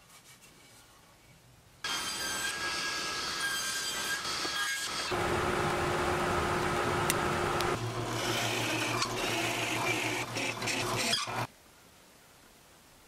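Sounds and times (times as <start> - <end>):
power tool motor running: 5.0 - 11.5
clicks: 6.6 - 7.8.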